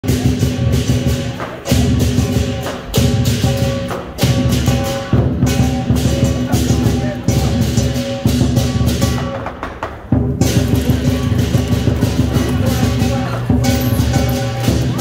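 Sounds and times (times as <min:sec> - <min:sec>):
big drum beating: 0:00.0 - 0:15.0
cymbals crashing: 0:00.0 - 0:15.0
ringing gong: 0:10.4 - 0:15.0.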